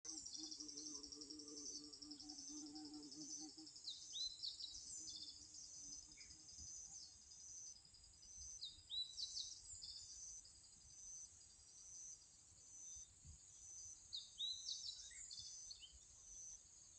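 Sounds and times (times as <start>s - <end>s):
birds chirping and trilling: 0.1s - 10.4s, 13.7s - 16.5s.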